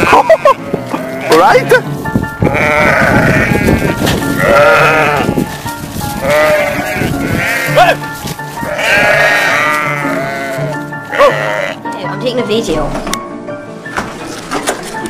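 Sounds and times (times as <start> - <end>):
sheep bleating: 0.0 - 5.6, 6.2 - 8.0, 8.6 - 11.9
background music: 0.0 - 15.0.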